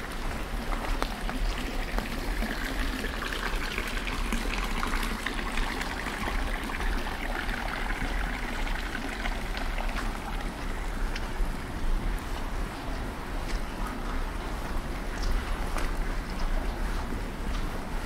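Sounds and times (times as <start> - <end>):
small drips and splashes: 0.0 - 18.0
water running and trickling: 0.0 - 18.0.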